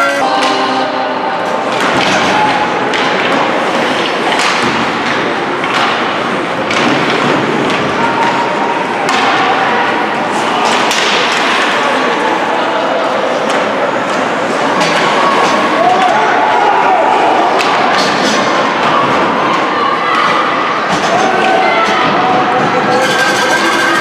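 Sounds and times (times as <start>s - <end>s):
puck and sticks knocking boards: 1.7s - 8.4s.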